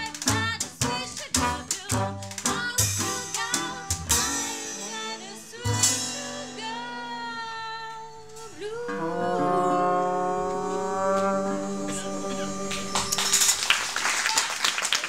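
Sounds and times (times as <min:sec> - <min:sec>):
person singing: 0:04.6 - 0:13.6
resonator guitar plucking: 0:07.1 - 0:13.6
trombone long notes: 0:08.5 - 0:14.0.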